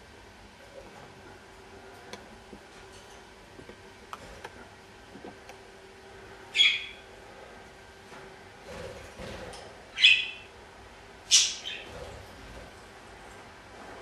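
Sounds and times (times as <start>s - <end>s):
budgie chirp: 6.5s - 7.0s, 10.0s - 10.5s.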